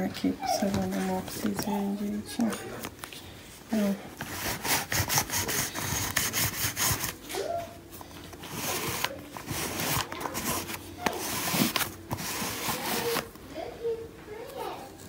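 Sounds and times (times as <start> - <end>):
lint roller rolling over fabric: 3.7 - 7.5, 8.2 - 13.4.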